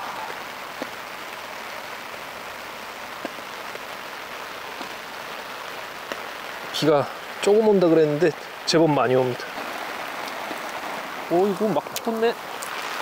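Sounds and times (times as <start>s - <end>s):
heavy rain: 0.0s - 13.0s
single raindrop hits: 9.4s - 13.0s.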